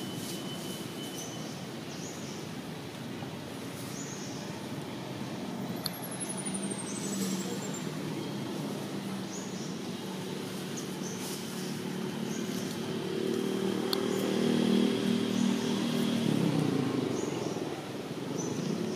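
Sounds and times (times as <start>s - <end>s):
outdoor ambience: 0.0s - 18.9s.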